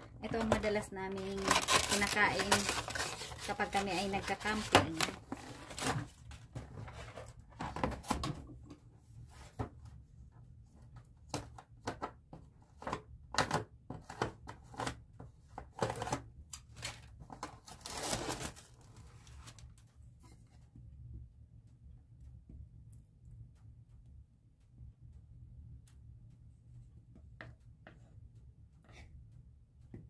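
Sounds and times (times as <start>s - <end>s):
plastic wrap crinkling: 0.2s - 6.4s, 16.6s - 19.7s
low steady hum: 16.4s - 30.0s.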